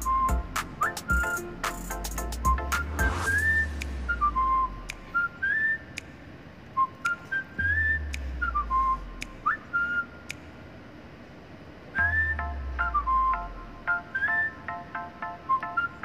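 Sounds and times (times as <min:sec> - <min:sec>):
percussion clicks: 0:00.0 - 0:03.1
whistled melody: 0:00.0 - 0:06.1, 0:06.8 - 0:10.2, 0:12.0 - 0:16.0.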